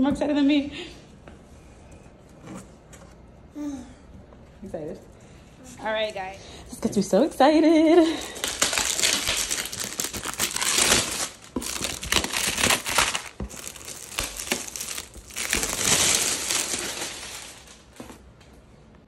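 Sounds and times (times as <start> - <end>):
plastic wrap crinkling: 7.8 - 18.3.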